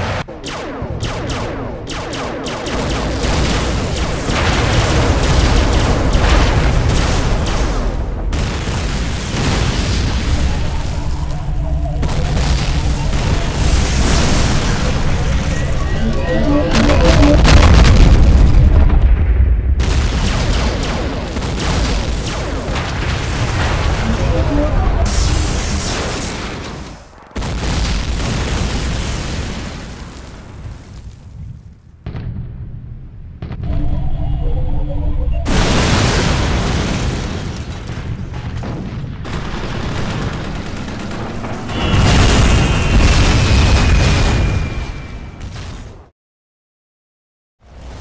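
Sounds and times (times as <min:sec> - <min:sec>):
rapid gunfire: 0:00.0 - 0:18.2, 0:19.8 - 0:26.8, 0:37.8 - 0:44.0
explosions booming: 0:00.0 - 0:34.3, 0:35.4 - 0:46.1.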